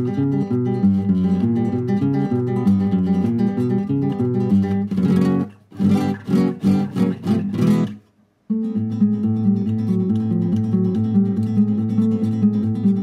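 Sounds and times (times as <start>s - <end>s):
acoustic guitar music: 0.0s - 13.0s.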